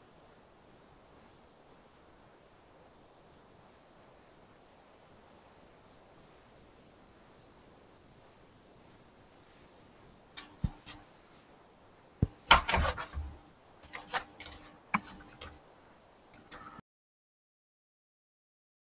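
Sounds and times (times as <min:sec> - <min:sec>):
board knocking and rubbing: 0:10.4 - 0:11.0, 0:12.2 - 0:15.6.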